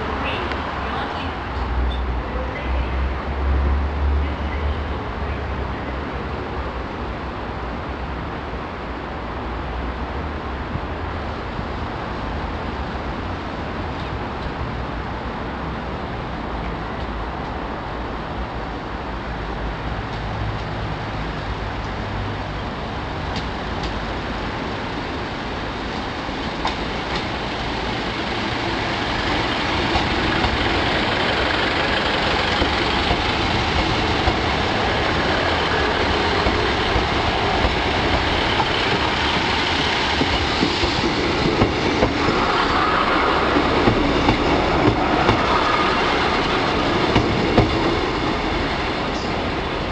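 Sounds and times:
diesel train engine drone: 0.0s - 49.9s
train wheels clicking over rail joints: 25.9s - 49.7s.

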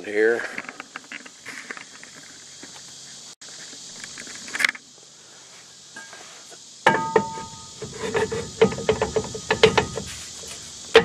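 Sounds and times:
faint background hiss: 0.0s - 11.0s
metal clank with ringing: 6.8s - 10.1s.

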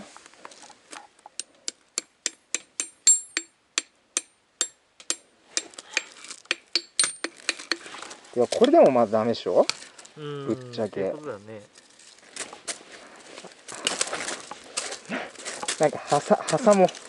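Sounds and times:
hammer clinking on hatchet: 2.8s - 3.5s, 6.7s - 7.8s.

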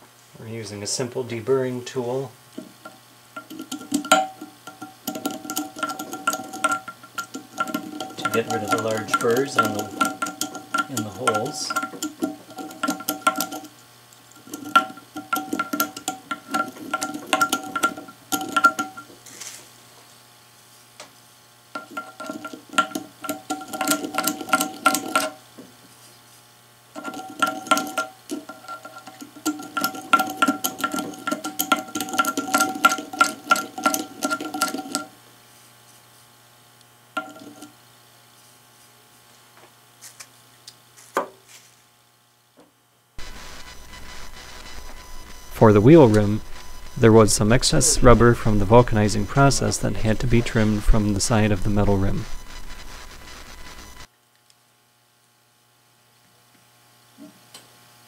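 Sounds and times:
metal rim ringing: 3.4s - 13.7s, 14.4s - 19.1s, 21.8s - 25.4s, 27.0s - 35.1s, 37.2s - 37.7s.

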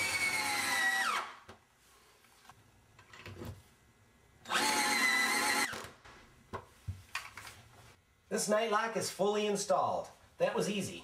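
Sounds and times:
power drill driving screws: 0.0s - 1.4s, 4.5s - 5.9s.

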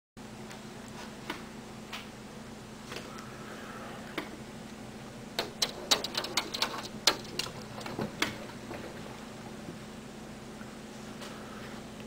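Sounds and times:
faint steady hum: 0.2s - 12.0s
sharp clicks and taps: 5.4s - 8.9s.

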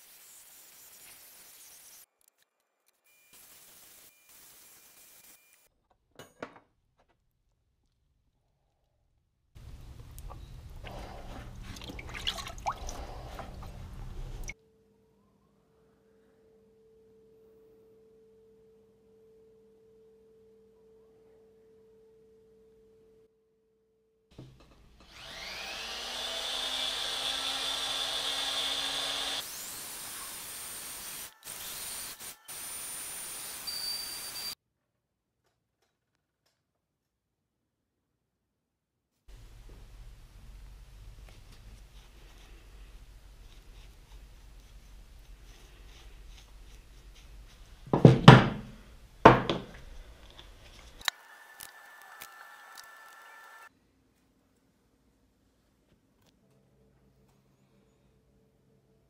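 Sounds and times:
faint steady tone: 14.6s - 24.3s
rotary tool whine: 25.0s - 34.6s, 51.0s - 53.7s
thunks on a workbench: 47.9s - 49.8s.

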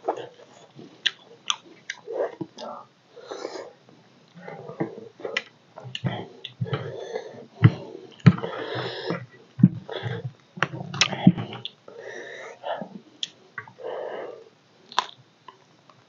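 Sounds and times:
chewing and lip smacking: 0.1s - 2.7s, 14.9s - 15.6s.

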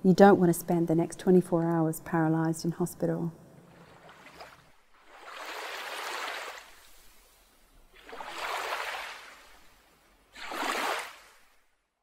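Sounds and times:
sea water washing: 3.6s - 11.5s.

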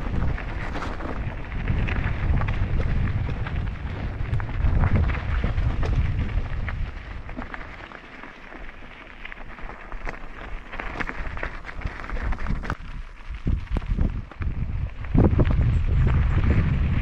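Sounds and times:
wind buffeting the microphone: 0.0s - 7.8s, 9.5s - 17.0s
mountain bike clicks and rattles: 0.0s - 17.0s.

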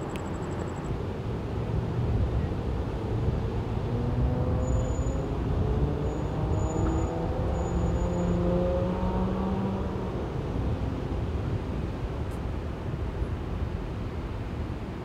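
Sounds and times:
vehicle accelerating: 3.5s - 11.0s.

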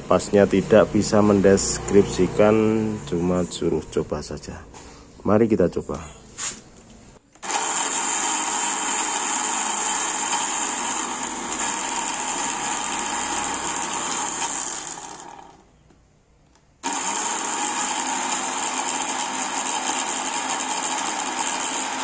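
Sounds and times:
blender motor whining: 7.4s - 15.7s, 16.8s - 22.0s.

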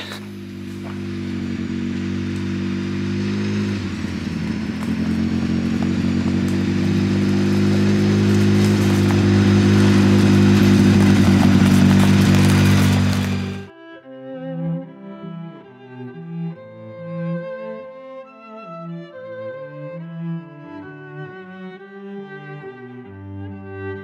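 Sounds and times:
vehicle engine running: 0.0s - 13.7s.

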